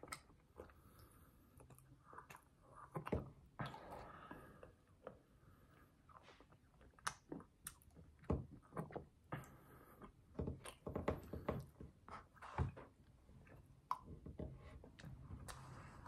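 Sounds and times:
chewing and mouth sounds: 0:00.0 - 0:11.0.

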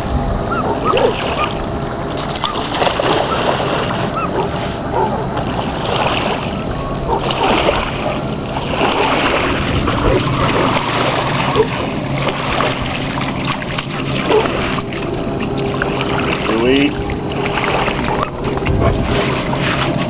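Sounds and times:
dog splashing through water: 0:07.1 - 0:20.0.

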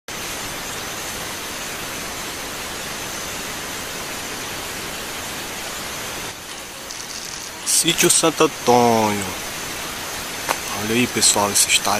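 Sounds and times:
river water rushing: 0:00.1 - 0:11.9
thin high whine: 0:00.4 - 0:10.0.

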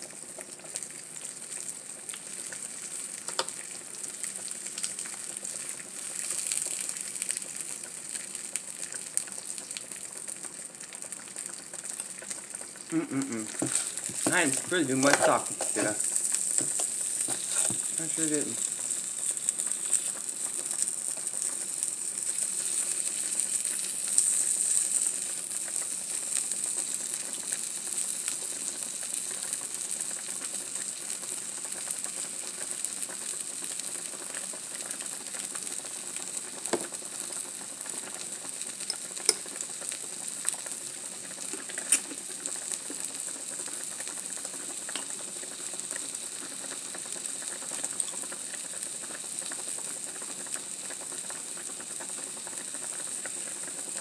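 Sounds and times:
food sizzling on a griddle: 0:00.0 - 0:54.0
fork clicking on pan: 0:38.9 - 0:39.5, 0:41.8 - 0:42.2.

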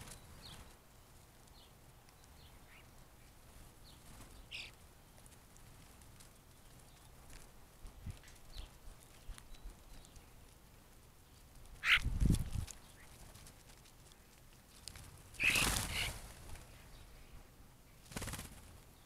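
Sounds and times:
birds wingbeats: 0:02.2 - 0:17.0, 0:18.0 - 0:19.0
harsh bird calls: 0:11.8 - 0:12.1, 0:15.4 - 0:16.2.

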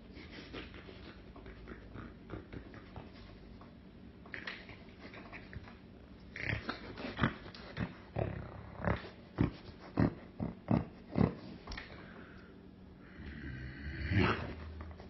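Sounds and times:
man making mock-eating noises: 0:00.7 - 0:03.4.

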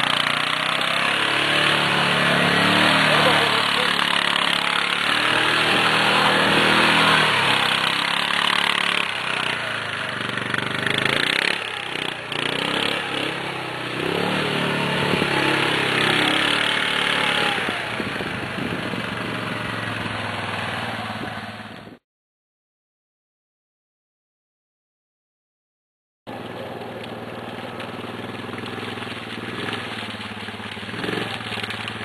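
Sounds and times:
quad engine revving: 0:00.0 - 0:22.0, 0:26.3 - 0:32.0.

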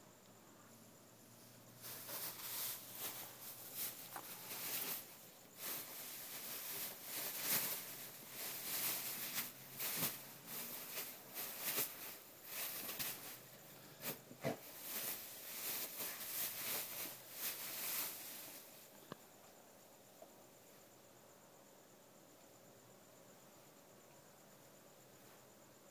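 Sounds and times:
bean bag rustling: 0:01.7 - 0:18.9.

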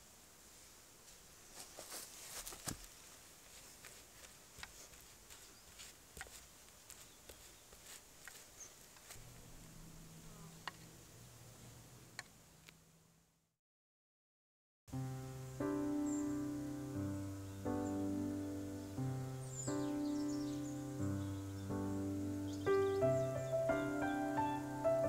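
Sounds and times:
low steady hum: 0:00.0 - 0:13.5.

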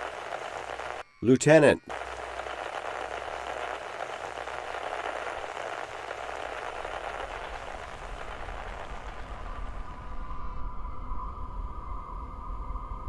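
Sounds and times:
radio static hiss: 0:00.0 - 0:10.3.

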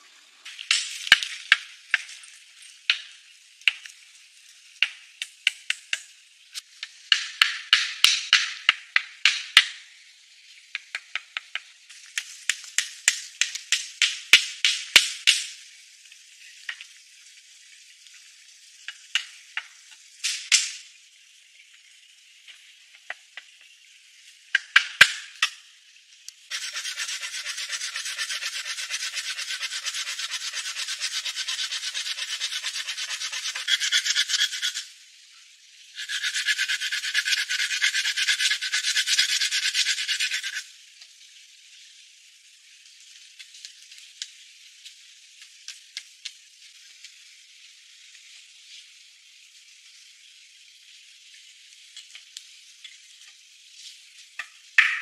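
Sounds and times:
hand tool rasping wood: 0:26.5 - 0:34.9, 0:36.0 - 0:40.6.

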